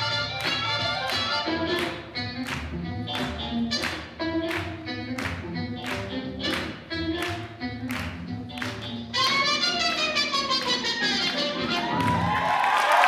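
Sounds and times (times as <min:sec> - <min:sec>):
swing jazz music: 0:00.0 - 0:12.4.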